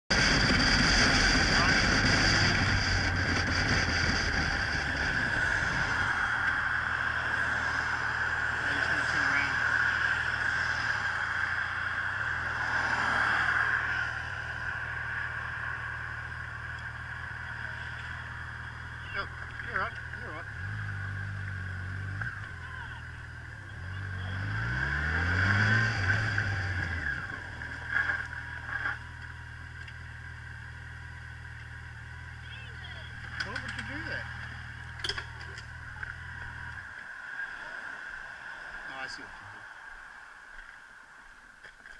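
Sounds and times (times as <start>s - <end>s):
motorcycle engine running: 0.0s - 12.7s, 13.8s - 25.3s, 26.0s - 37.0s
wind noise: 0.1s - 6.8s.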